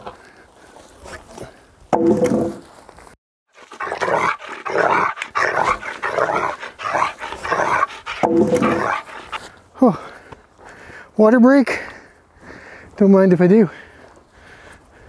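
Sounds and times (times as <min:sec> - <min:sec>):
dog vocalising: 0:03.6 - 0:09.4.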